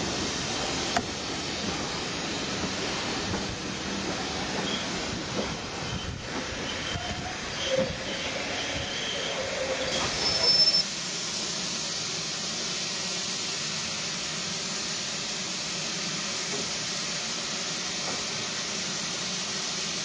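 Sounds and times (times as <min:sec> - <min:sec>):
steam locomotive hissing: 0:00.0 - 0:20.0
railway carriages wheel squeal: 0:04.2 - 0:10.9.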